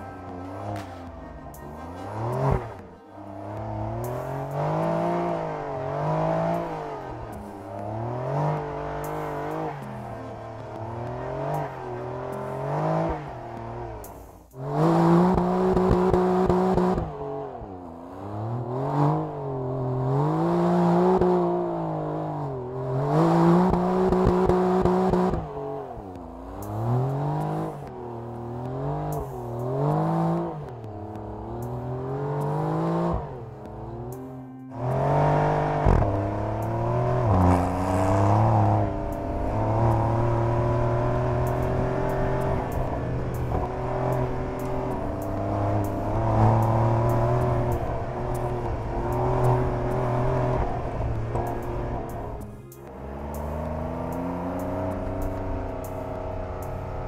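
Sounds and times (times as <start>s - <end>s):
car engine revving hard: 34.7s - 52.4s.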